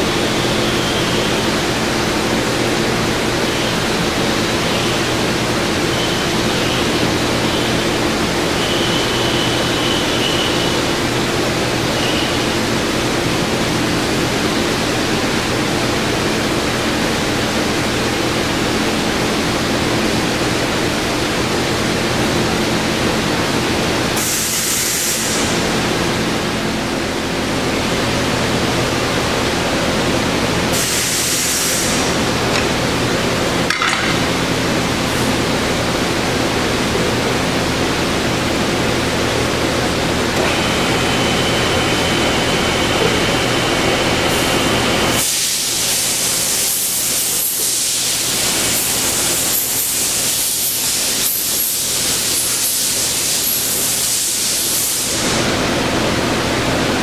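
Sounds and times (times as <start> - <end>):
surface grinder humming and hissing: 18.2 - 57.0.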